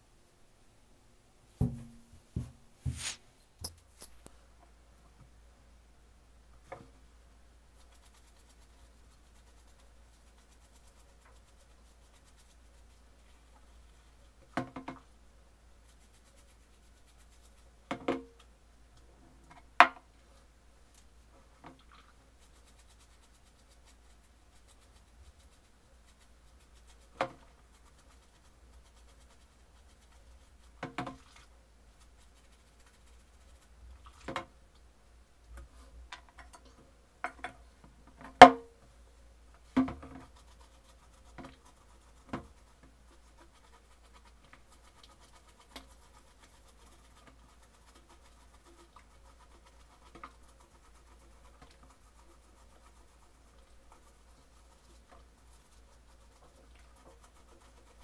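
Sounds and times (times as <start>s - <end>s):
bristle brush scrubbing: 2.4s - 3.2s, 7.7s - 14.4s, 15.8s - 17.8s, 21.7s - 34.4s, 39.6s - 58.0s.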